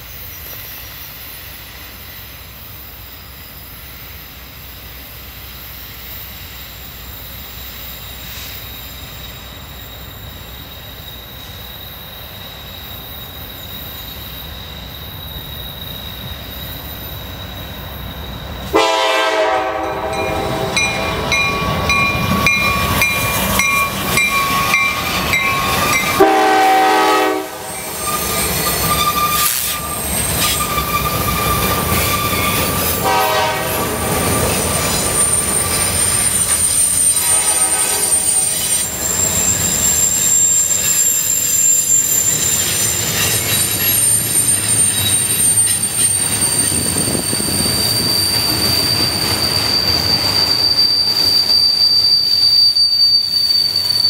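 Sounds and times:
rail cars rumbling: 0.0s - 54.0s
wheel flange squeal: 0.2s - 54.0s
diesel locomotive horn blasts: 18.7s - 34.4s, 37.1s - 38.6s.

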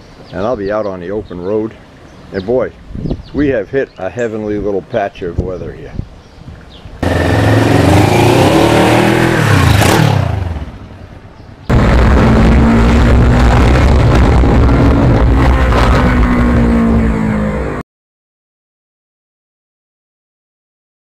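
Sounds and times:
road wind: 0.0s - 17.8s
motorcycle engine running: 7.0s - 10.8s.

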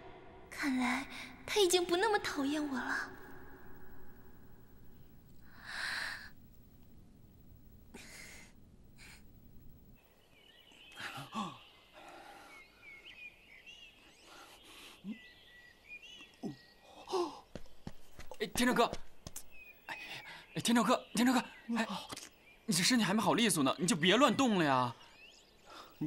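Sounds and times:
birds chirping: 7.4s - 26.0s.

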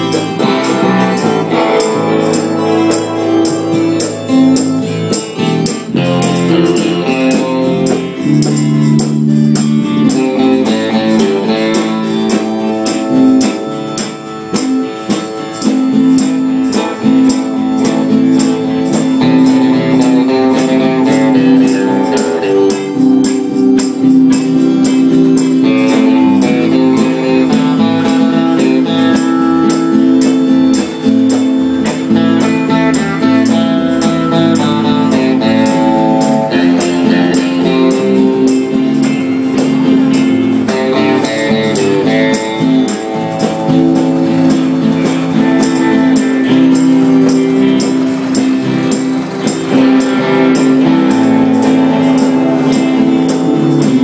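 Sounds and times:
acoustic guitar band music: 0.0s - 54.0s.

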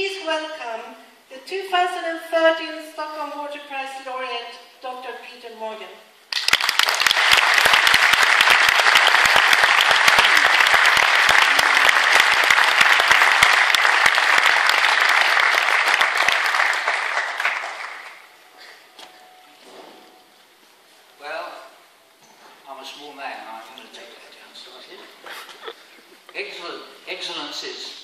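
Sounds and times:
audience applauding: 6.3s - 18.3s.

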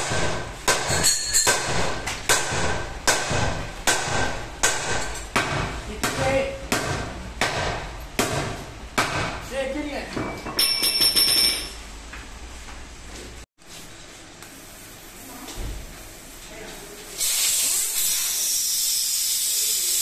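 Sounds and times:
hammer beating on steel wheel: 0.0s - 9.4s.

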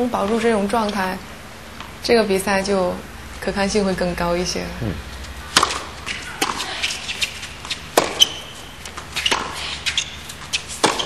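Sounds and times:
tennis ball knocks: 8.0s - 8.3s.

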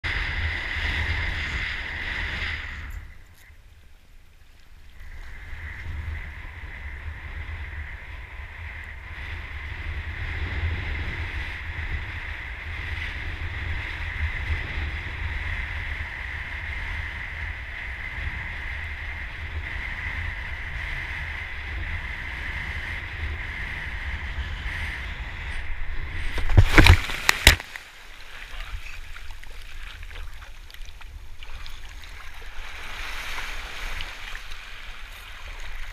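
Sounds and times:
wind buffeting microphone: 0.0s - 3.4s, 4.9s - 35.9s
water rushing: 25.9s - 35.9s
splash into water: 26.3s - 34.6s.

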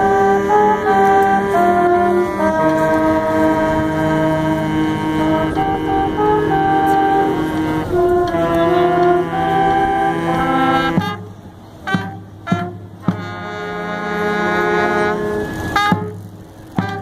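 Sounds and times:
saxophones and brass chords: 0.0s - 17.0s.

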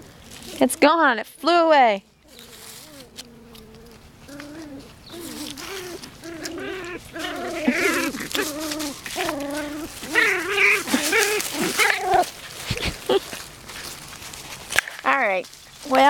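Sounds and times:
dry leaves crunching underfoot: 0.0s - 1.5s, 2.2s - 16.0s
dog whining: 2.3s - 13.3s.

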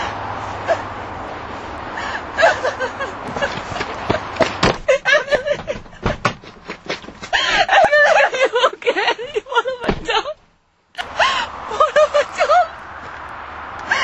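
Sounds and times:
sharp knocks: 3.3s - 7.6s.

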